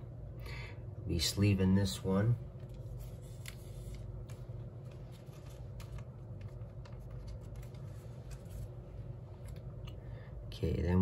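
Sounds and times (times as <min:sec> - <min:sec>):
low room hum: 0:00.0 - 0:11.0
card rustling and clicks: 0:02.6 - 0:09.8.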